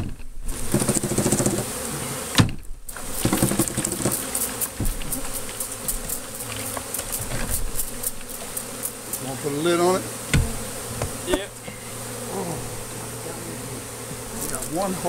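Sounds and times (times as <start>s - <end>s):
honeybees buzzing: 0.4s - 15.0s.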